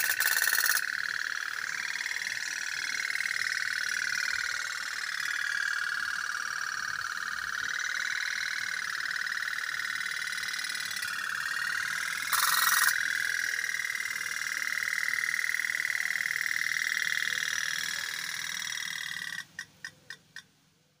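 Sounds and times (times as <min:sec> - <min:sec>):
toy steam boat putt-putt: 0:00.0 - 0:00.8.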